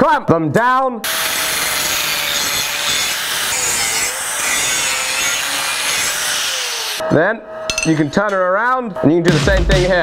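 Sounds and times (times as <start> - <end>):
angle grinder grinding steel: 1.1 - 7.0.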